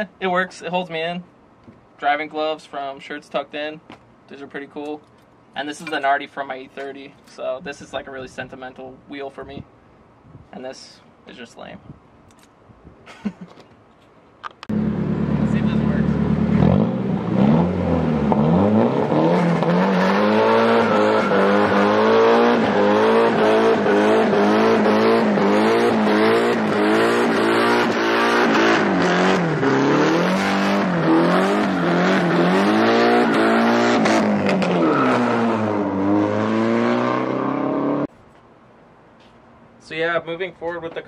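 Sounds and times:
car engine revving high: 14.7s - 38.1s
tyres squealing: 19.9s - 25.0s.

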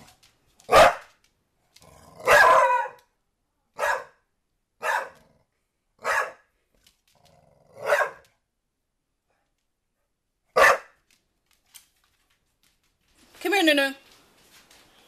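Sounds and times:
puppy barking: 0.7s - 1.1s, 2.2s - 3.0s, 3.8s - 4.2s, 4.8s - 5.2s, 6.0s - 6.5s, 7.8s - 8.3s, 10.5s - 11.0s.

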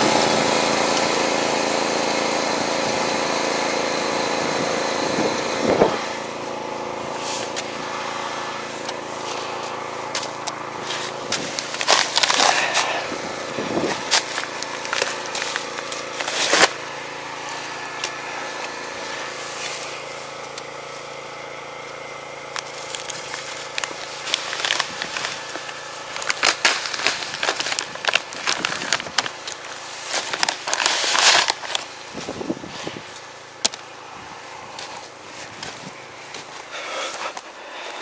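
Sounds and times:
engine hum: 0.0s - 38.0s
sacks crinkling and rustling: 10.2s - 16.8s, 22.6s - 32.5s.

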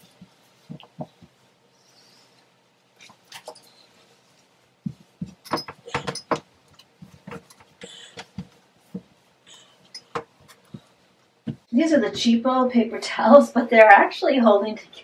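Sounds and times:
paper towel wiping tub: 0.0s - 5.5s, 6.4s - 12.4s.

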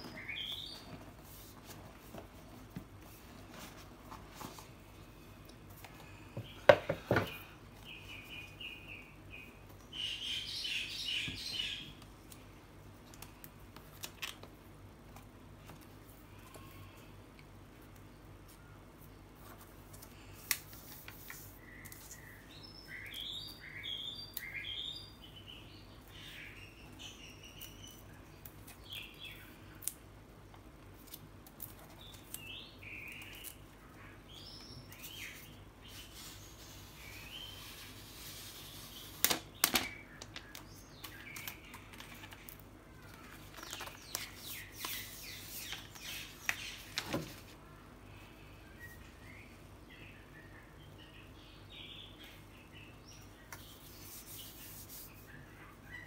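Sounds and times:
plastic film crinkling: 41.2s - 47.5s.

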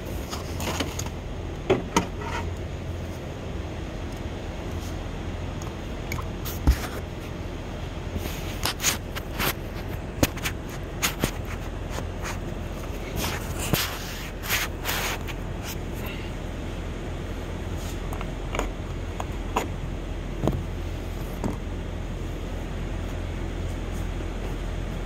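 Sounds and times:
steady low hum: 0.0s - 25.0s
scrapes and rustles: 6.4s - 7.4s, 8.2s - 16.1s.

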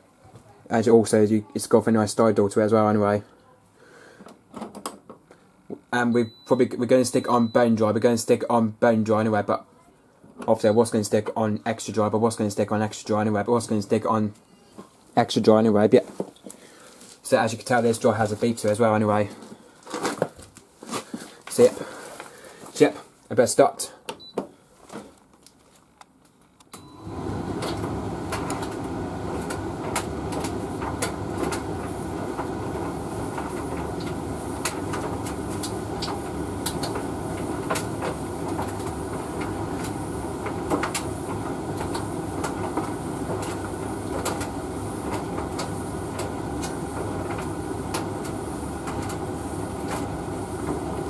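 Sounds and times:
tumble dryer rumbling and humming: 26.9s - 51.0s.

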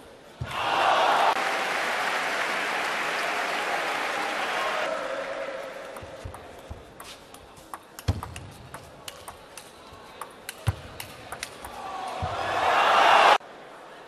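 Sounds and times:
crowd applause: 0.5s - 6.0s
table tennis ball clicking: 5.9s - 12.2s.

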